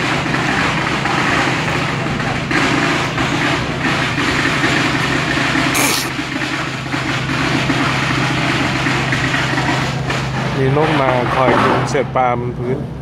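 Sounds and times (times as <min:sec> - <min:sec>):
boat engine idling: 0:00.0 - 0:11.2
short hiss: 0:05.8 - 0:06.1.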